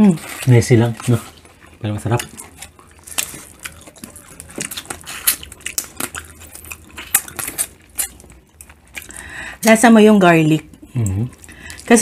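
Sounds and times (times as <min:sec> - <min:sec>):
close-up eating and sucking: 0:00.0 - 0:09.6.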